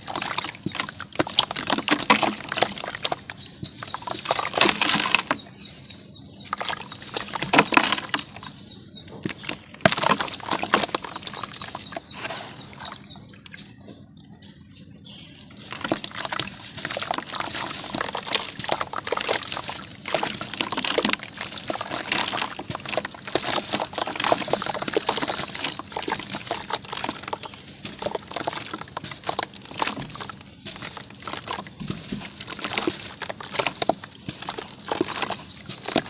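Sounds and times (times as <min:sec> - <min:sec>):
water splashing and dripping: 0:00.0 - 0:13.7, 0:15.4 - 0:36.0
water sloshing in plastic basin: 0:00.0 - 0:36.0.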